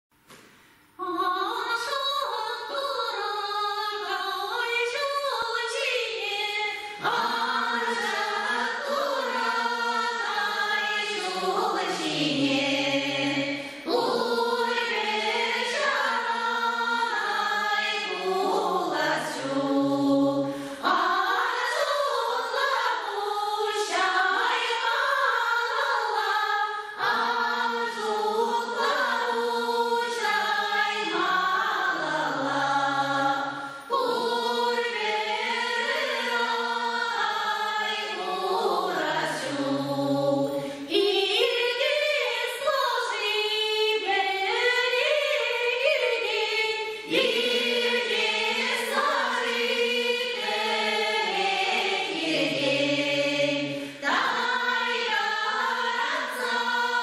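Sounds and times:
women's folk choir singing: 0:01.0 - 0:57.0
singers breathing: 0:06.7 - 0:07.0, 0:13.5 - 0:13.9, 0:20.4 - 0:20.9, 0:33.5 - 0:33.9, 0:40.6 - 0:40.9, 0:53.7 - 0:54.1.

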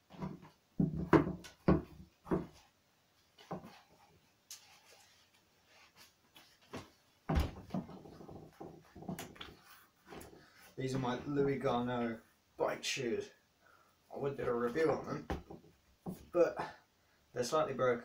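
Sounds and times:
rustling: 0:01.5 - 0:12.3.

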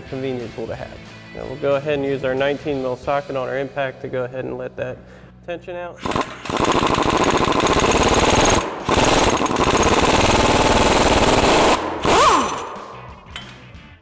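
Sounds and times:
impact wrench hammering: 0:06.0 - 0:13.6.

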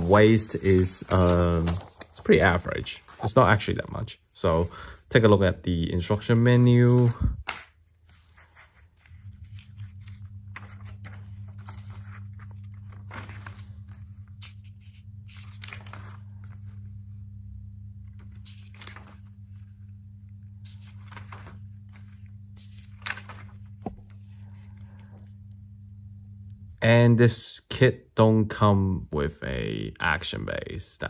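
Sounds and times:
paper pages rustling: 0:00.0 - 0:05.3, 0:06.0 - 0:17.0, 0:18.0 - 0:25.3
steady low hum: 0:00.0 - 0:31.0.

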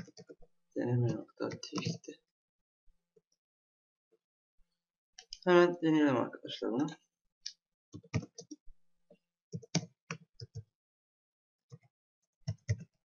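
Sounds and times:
typing on computer keyboard: 0:08.0 - 0:08.6, 0:09.6 - 0:10.7, 0:11.7 - 0:13.0.

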